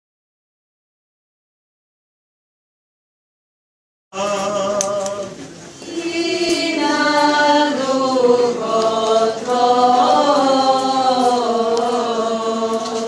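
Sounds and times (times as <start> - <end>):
choir chanting long held notes: 4.2 - 13.0.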